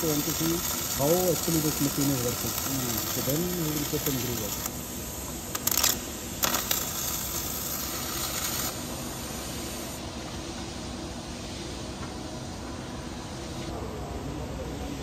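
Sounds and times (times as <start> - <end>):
welding spatter crackles: 0.0 - 4.8, 5.4 - 8.9
welding arc hissing: 0.0 - 10.0.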